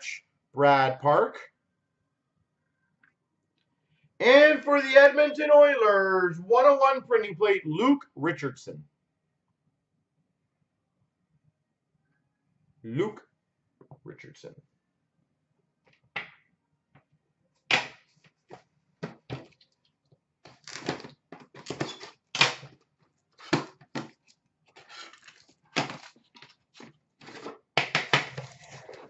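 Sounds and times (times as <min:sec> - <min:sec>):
cardboard scraping: 0:24.8 - 0:27.6, 0:28.3 - 0:29.0.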